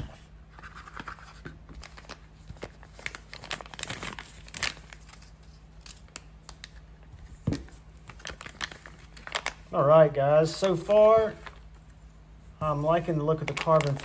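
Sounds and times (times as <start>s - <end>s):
plastic sleeve crinkling: 0.6s - 6.9s, 7.5s - 9.7s, 10.5s - 12.0s, 12.7s - 14.0s.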